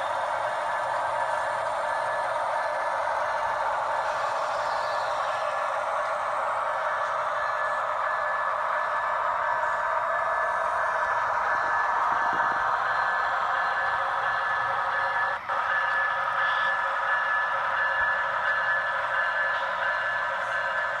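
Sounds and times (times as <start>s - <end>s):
model locomotives droning: 0.0s - 21.0s.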